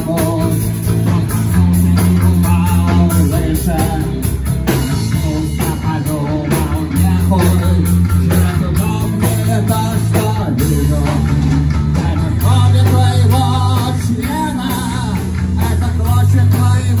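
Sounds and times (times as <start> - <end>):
bass line: 0.0 - 17.0
live rock band playing: 0.0 - 17.0
person singing: 0.0 - 17.0.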